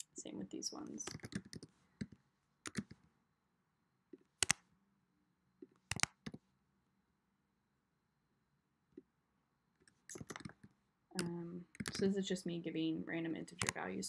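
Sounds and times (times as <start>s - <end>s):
keyboard key clicks: 1.0s - 3.0s, 4.4s - 4.6s, 5.9s - 6.4s, 13.6s - 13.8s.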